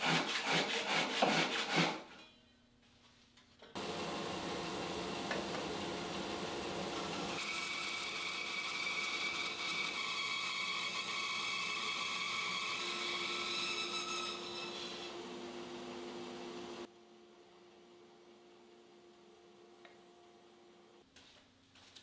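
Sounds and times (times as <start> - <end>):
bandsaw cutting wood: 0.0 - 2.0, 7.1 - 15.2.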